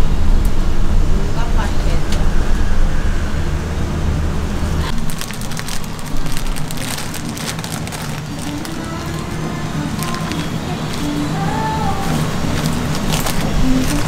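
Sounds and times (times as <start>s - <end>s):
low rumble: 0.0s - 14.0s
plastic bag crackling: 4.9s - 14.0s.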